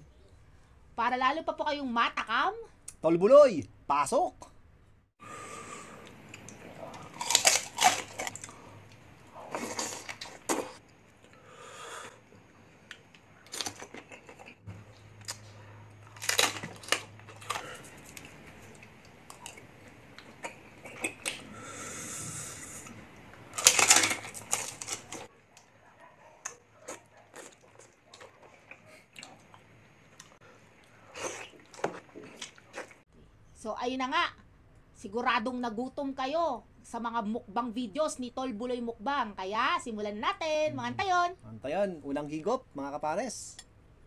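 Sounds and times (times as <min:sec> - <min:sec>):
person crunching and chewing food: 0:06.0 - 0:10.8, 0:12.9 - 0:21.5, 0:22.4 - 0:25.3, 0:26.4 - 0:33.0.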